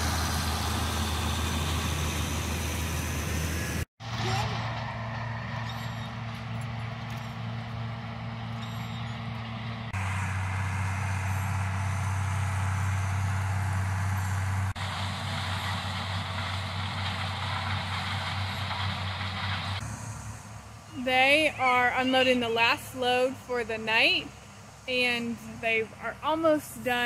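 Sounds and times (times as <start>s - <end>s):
diesel engines droning: 0.0s - 27.0s.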